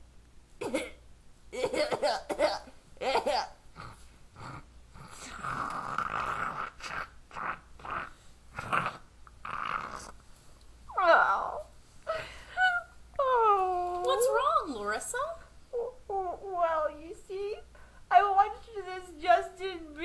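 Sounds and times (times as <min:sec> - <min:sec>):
person coughing: 0:00.6 - 0:01.0, 0:01.6 - 0:03.5.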